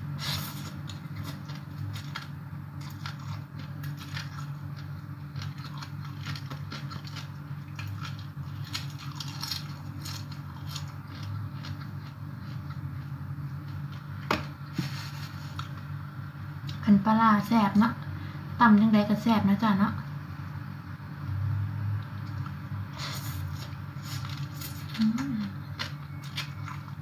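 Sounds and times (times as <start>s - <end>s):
person chewing and crunching: 0.2s - 14.2s, 22.3s - 27.0s.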